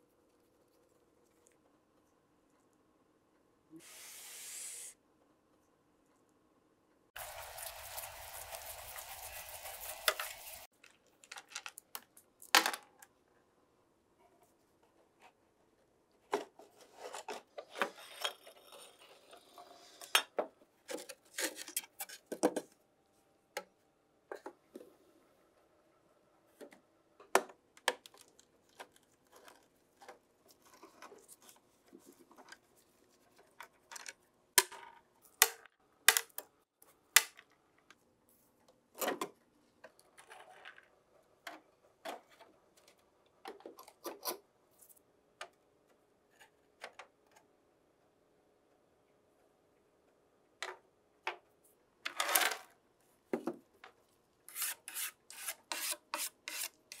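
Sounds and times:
brush sweeping dust: 7.2 - 10.7.

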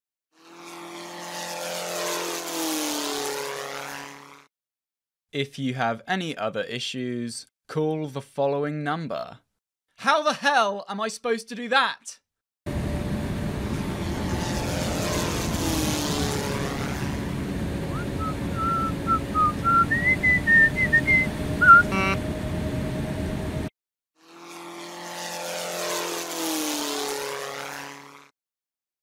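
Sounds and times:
jet engine drone: 0.4 - 4.5, 12.7 - 23.7, 24.3 - 28.3
whistled notes: 17.9 - 22.2.

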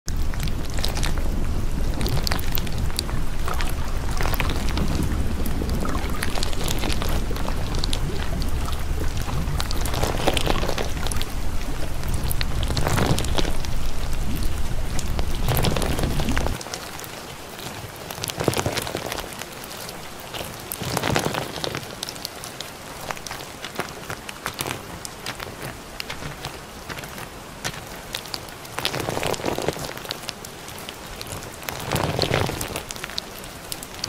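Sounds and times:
steady rain falling: 0.1 - 34.0.

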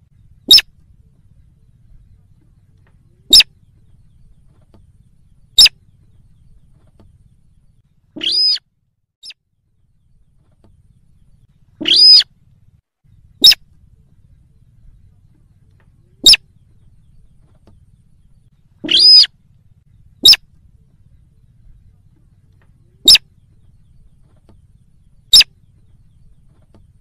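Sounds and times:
rail short sharp high calls: 8.2 - 8.6, 11.8 - 12.3, 18.8 - 19.3.

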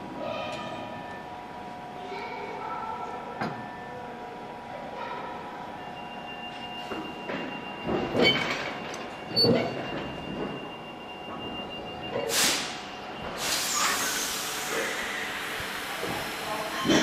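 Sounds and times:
faint train equipment whine: 0.0 - 17.0
air hiss: 12.3 - 12.8, 13.4 - 16.0.

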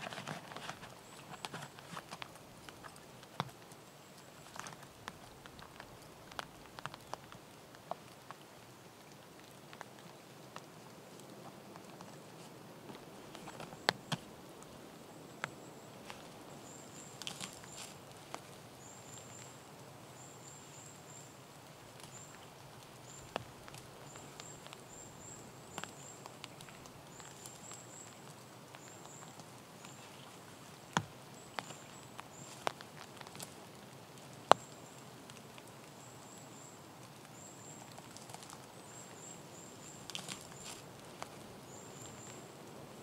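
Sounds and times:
snaps and rustles in undergrowth: 0.0 - 8.4, 9.0 - 14.8, 15.4 - 19.6, 21.9 - 36.0, 37.0 - 42.4
small bird chirping: 15.3 - 33.7, 36.0 - 42.5.

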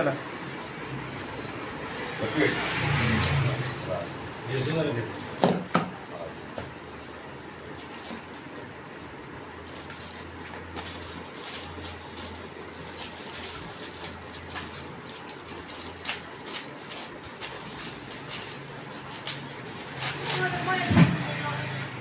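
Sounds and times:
plastic packaging crinkling: 7.8 - 8.4, 9.6 - 20.8.

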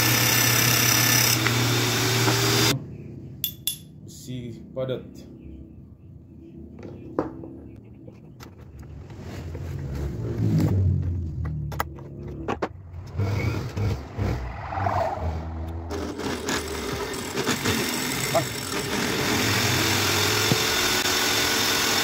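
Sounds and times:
motor humming: 15.8 - 22.0.

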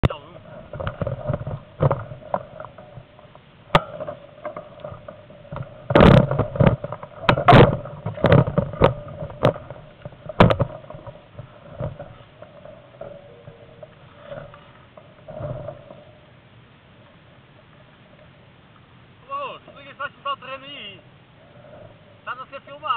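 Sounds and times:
knocks and clatters: 0.0 - 16.1
bike tyres crunching on dirt: 0.0 - 20.1.

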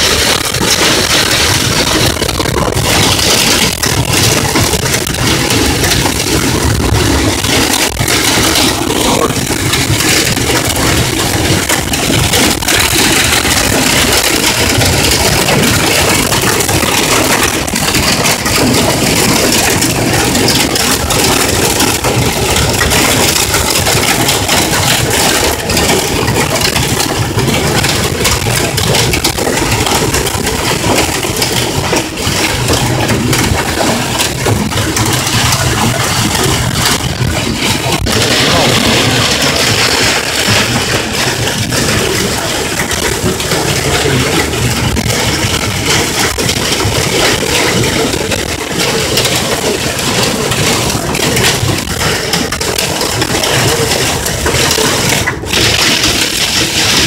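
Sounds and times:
hail and rain on car roof: 0.0 - 57.0.

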